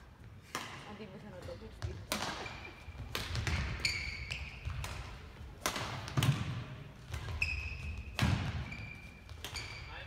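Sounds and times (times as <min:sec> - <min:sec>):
racket hitting shuttlecock: 0:00.4 - 0:01.0, 0:02.0 - 0:09.9
shoes squeaking on floor: 0:02.4 - 0:04.8, 0:07.0 - 0:10.0.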